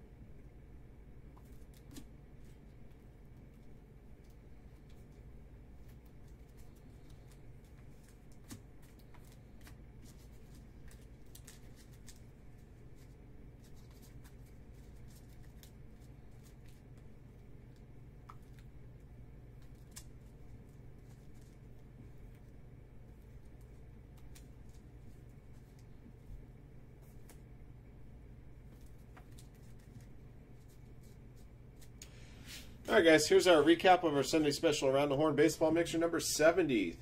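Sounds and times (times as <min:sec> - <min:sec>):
low steady hum: 0:00.0 - 0:37.0
cards in plastic sleeves rustling: 0:01.3 - 0:27.5, 0:28.6 - 0:37.0.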